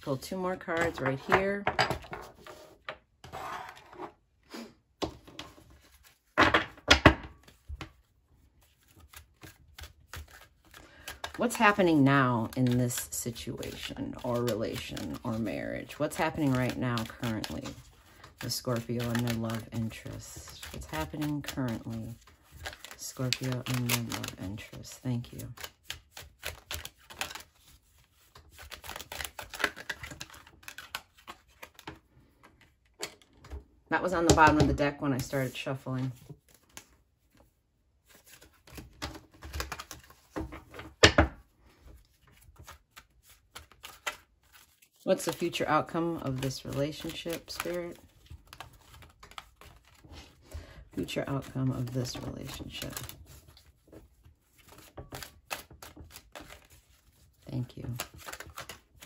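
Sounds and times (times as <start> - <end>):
cards laid on wooden table: 0.7 - 4.1
cards being shuffled: 5.0 - 6.4, 7.4 - 33.5, 34.2 - 41.0, 41.7 - 59.0.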